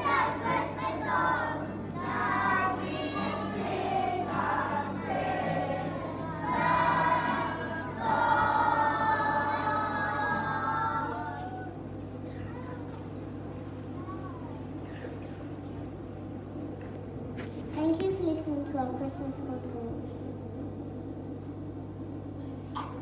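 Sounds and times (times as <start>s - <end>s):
children's choir singing: 0.0s - 11.7s.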